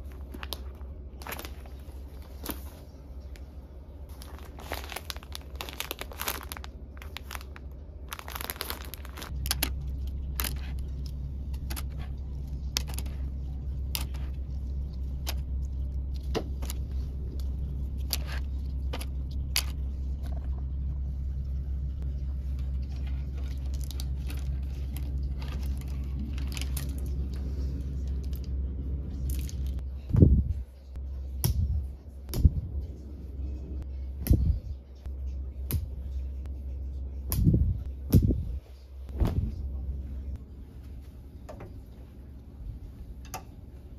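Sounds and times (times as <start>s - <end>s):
plastic packaging crinkling: 0.0s - 2.9s, 4.1s - 13.2s, 22.6s - 28.5s
steady low hum: 0.0s - 43.9s.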